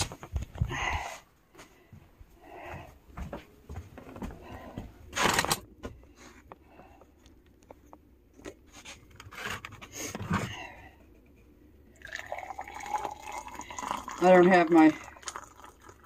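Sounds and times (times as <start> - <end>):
handling noise on phone: 0.0 - 0.6, 5.1 - 6.6.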